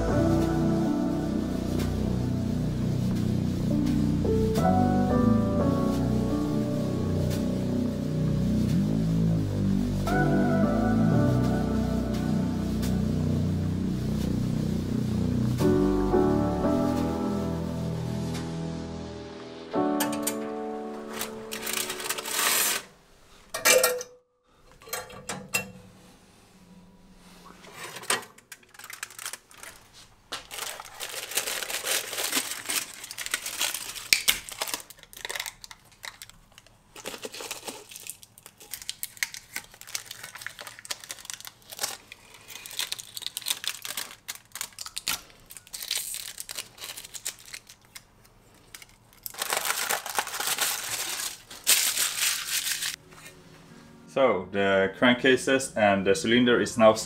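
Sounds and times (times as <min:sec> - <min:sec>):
aluminium foil crinkling: 0:00.0 - 0:08.6, 0:20.0 - 0:22.9, 0:28.4 - 0:53.3.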